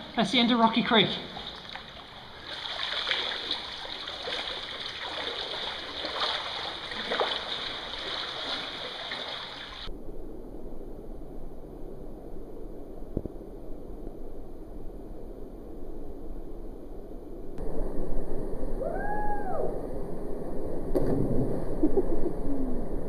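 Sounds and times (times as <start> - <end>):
dull low rumble and hiss: 0.0 - 23.0
flowing water rushing: 0.7 - 9.9
water splashing as people wade: 1.3 - 9.9.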